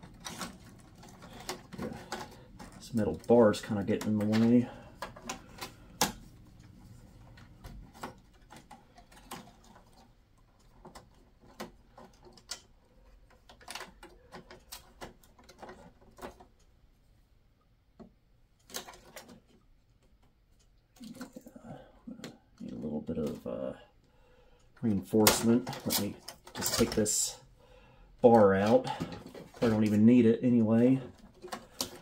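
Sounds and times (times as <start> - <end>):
clicks and knocks of computer parts: 0.0 - 16.7, 18.0 - 21.5, 24.8 - 27.2, 28.3 - 32.0.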